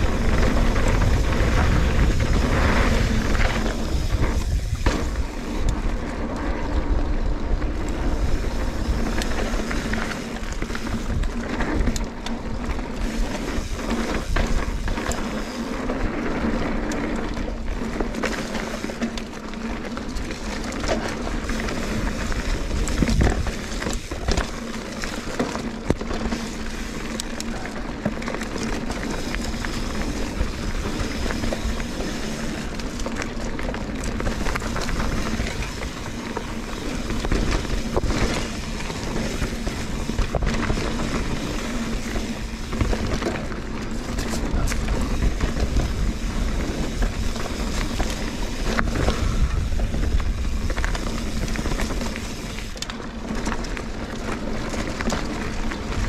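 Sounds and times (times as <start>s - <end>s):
wind on microphone: 0.0s - 6.0s, 21.8s - 24.5s, 44.1s - 52.7s
bike tyres rumbling on dirt: 0.0s - 56.0s.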